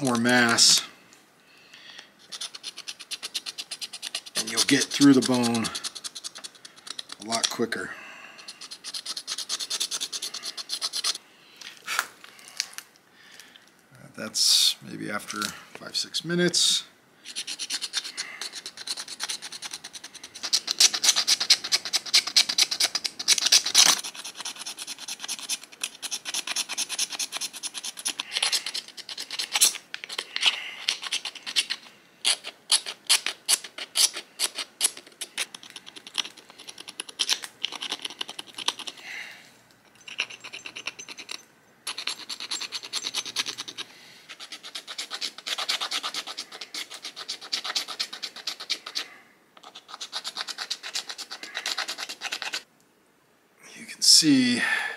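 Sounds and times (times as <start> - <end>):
stone tool scraping bone: 2.2 - 7.8, 8.4 - 11.2, 17.2 - 39.0, 39.9 - 52.6.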